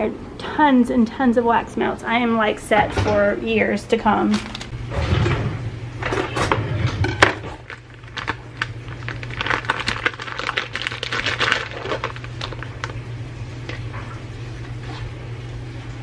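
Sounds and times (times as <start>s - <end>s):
steady low hum: 0.0s - 16.0s
foil tray rustling: 4.2s - 4.8s, 7.2s - 13.0s
plastic bag crinkling: 4.2s - 4.8s, 7.2s - 13.0s.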